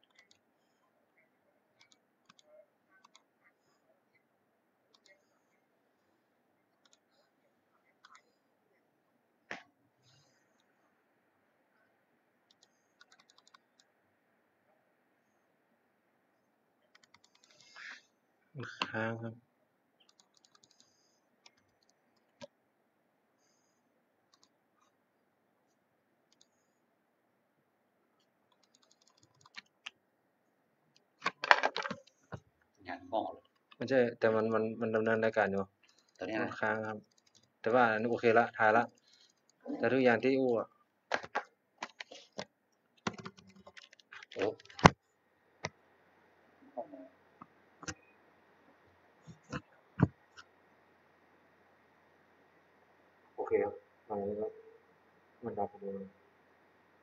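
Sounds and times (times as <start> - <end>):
computer keyboard and mouse clicks: 0.0 - 0.4, 1.8 - 3.3, 4.9 - 5.2, 6.8 - 7.1, 12.5 - 13.9, 16.9 - 18.0, 20.0 - 22.6, 24.3 - 24.9, 26.3 - 26.5, 28.5 - 30.0, 30.9 - 32.4, 37.0 - 37.5, 41.1 - 45.0, 47.8 - 48.0
faint clicks: 0.0 - 0.4, 24.3 - 24.9, 26.3 - 26.6.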